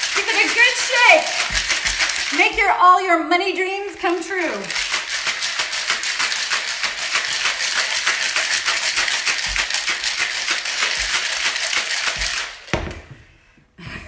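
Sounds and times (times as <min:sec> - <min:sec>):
ice rattling in cocktail shaker: 0:00.0 - 0:12.7
shaker knocking on counter: 0:01.2 - 0:02.7, 0:09.0 - 0:13.1.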